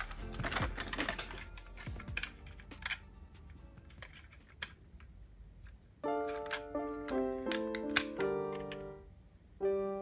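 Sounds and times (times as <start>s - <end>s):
metal toy cars clattering: 0.0s - 3.0s.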